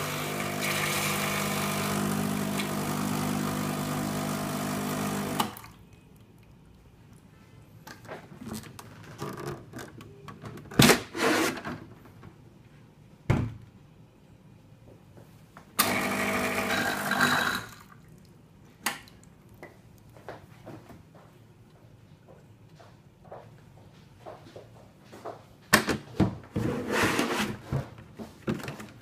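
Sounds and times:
espresso machine buzzing: 0.0 - 5.5, 15.8 - 17.7.

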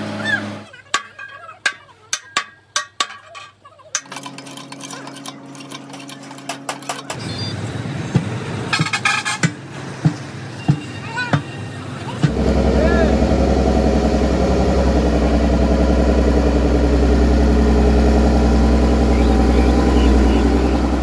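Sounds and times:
hammer striking steel rim: 1.0 - 3.4
steady low hum: 12.2 - 21.0.

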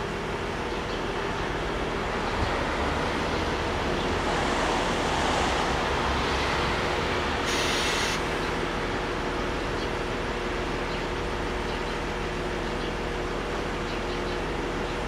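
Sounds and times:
diesel railcar engine idling: 0.0 - 15.0
short hiss: 7.4 - 8.2.

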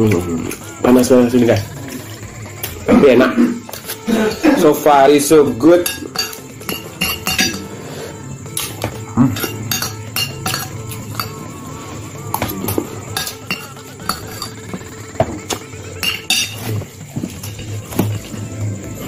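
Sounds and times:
metal spoon scraping glass bowl: 1.5 - 4.8, 5.8 - 7.7, 8.6 - 11.5, 12.4 - 14.9, 16.0 - 18.3.

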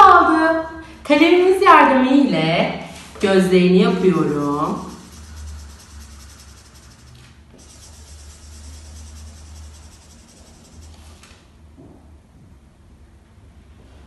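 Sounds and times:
low steady hum: 0.1 - 14.0
marker rubbing on paper: 4.2 - 11.3.

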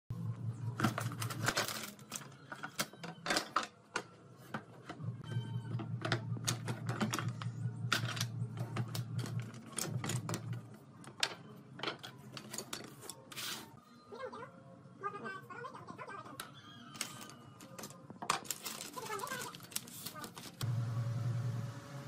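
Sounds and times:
steady low hum: 4.9 - 11.0.

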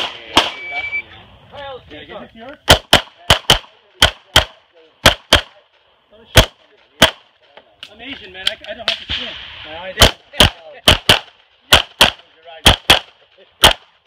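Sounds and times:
handgun shots: 10.0 - 13.9.

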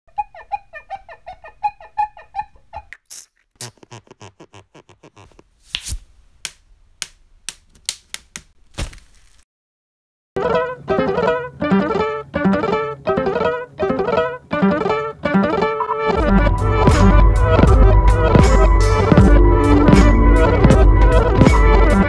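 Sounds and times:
squeaky cartoon pulses: 1.6 - 5.4.

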